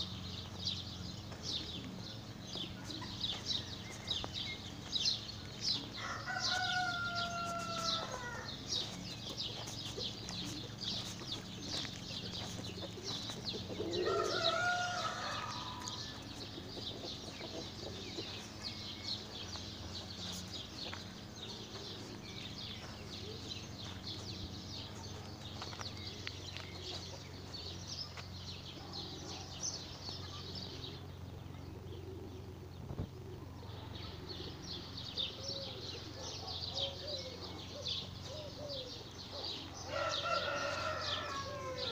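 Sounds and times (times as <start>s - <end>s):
small birds twittering: 0.0s - 41.9s
rooster crowing: 6.0s - 8.6s, 13.8s - 16.2s, 39.8s - 41.9s.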